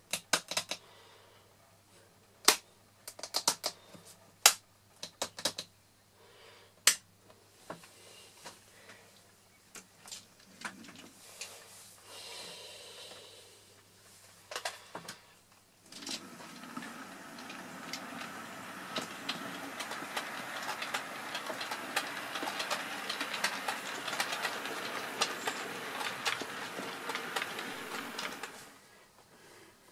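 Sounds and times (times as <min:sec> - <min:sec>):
wheels clicking over rail joints: 0:15.9 - 0:28.7
model train rolling rumble: 0:16.0 - 0:28.8.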